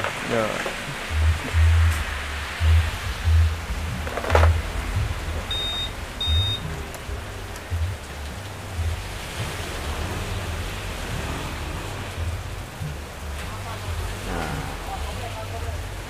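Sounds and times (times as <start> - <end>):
heavy rain: 0.0 - 16.0
short electronic beeps: 5.5 - 6.6.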